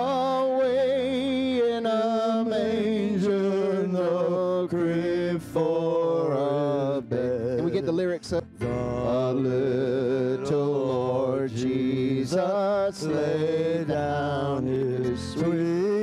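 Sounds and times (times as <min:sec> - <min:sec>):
keyboard accompaniment: 0:00.0 - 0:16.0
man singing gospel song: 0:00.0 - 0:16.0.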